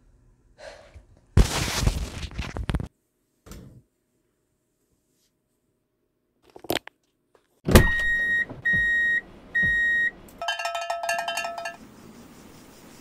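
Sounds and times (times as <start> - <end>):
countdown beeps with thumps: 7.9 - 10.6.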